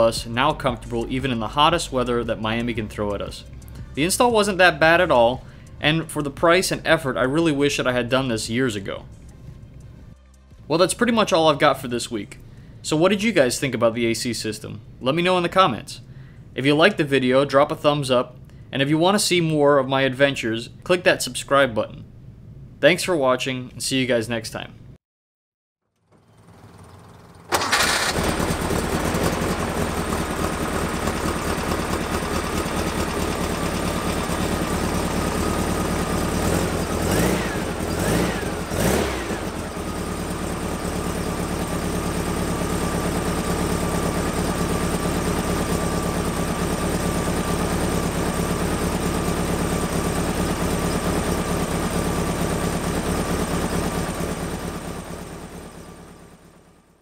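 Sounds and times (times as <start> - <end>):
engine revving and idling: 0.0 - 10.5, 26.1 - 56.2
engine cranking and starting: 25.9 - 55.6.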